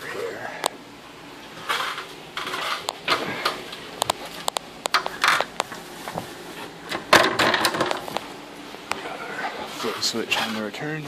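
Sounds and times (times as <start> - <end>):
scraping and rustling: 1.5 - 6.8, 9.0 - 10.8
sharp clicks and knocks: 1.7 - 5.8.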